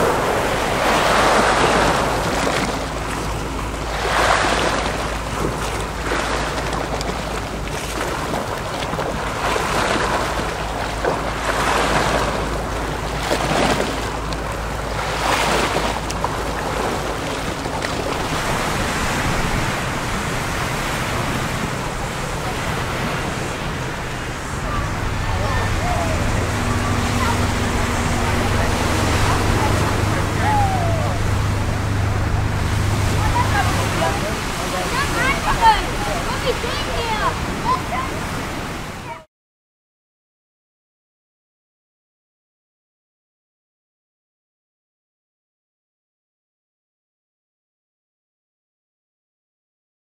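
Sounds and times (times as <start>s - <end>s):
wind rumble on microphone: 0.0s - 39.2s
small waves breaking on shore: 0.0s - 39.3s.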